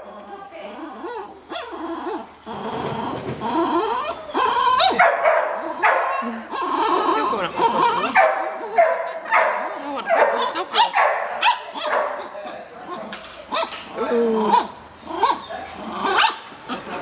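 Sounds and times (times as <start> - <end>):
dog barking: 4.8 - 6.3, 7.8 - 12.4, 16.1 - 16.5.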